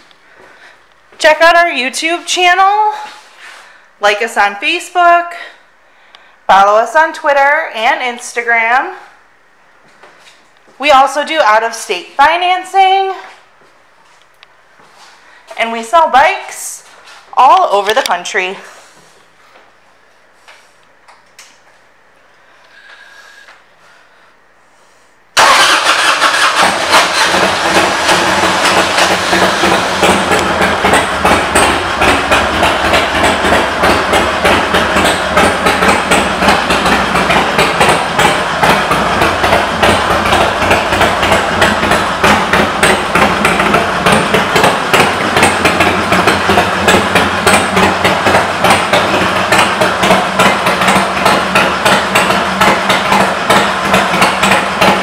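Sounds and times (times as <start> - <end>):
motorcycle engine idling: 25.4 - 55.0.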